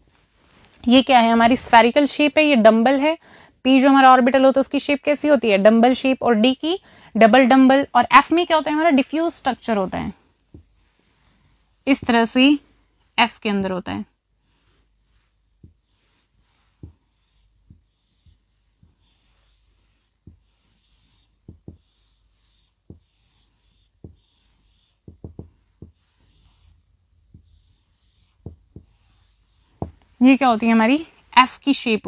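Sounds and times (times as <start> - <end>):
marker pen hissing on whiteboard: 8.5 - 12.9, 14.4 - 30.6
marker tip tapping board: 15.6 - 15.8, 16.8 - 26.7, 27.3 - 30.0.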